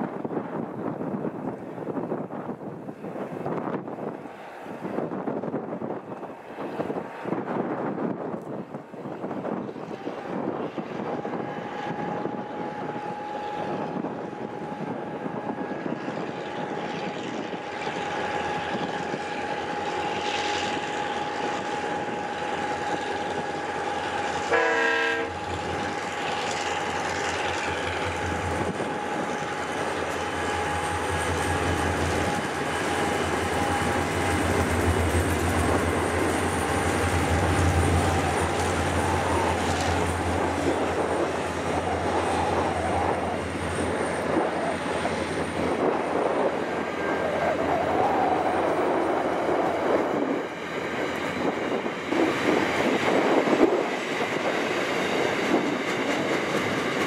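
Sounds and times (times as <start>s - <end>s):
diesel train engine rumble: 0.0s - 57.0s
locomotive horn blast: 24.2s - 26.3s.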